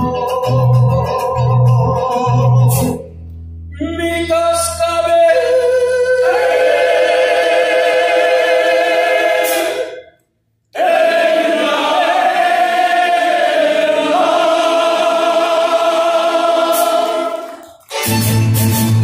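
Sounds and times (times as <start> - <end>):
voices singing held notes: 5.2 - 10.1, 10.8 - 17.7.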